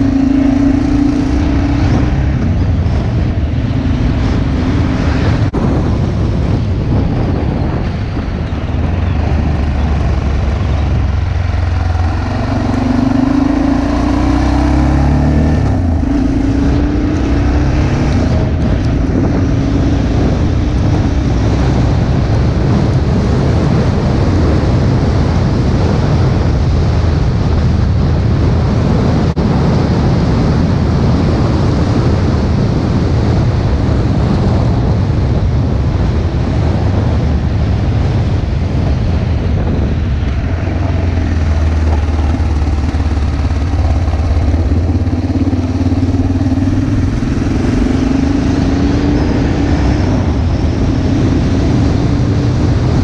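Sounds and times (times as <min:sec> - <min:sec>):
bus passing: 0:00.0 - 0:23.8, 0:36.1 - 0:53.0
motorcycle engine: 0:00.0 - 0:53.0
wind rush on microphone: 0:00.0 - 0:53.0.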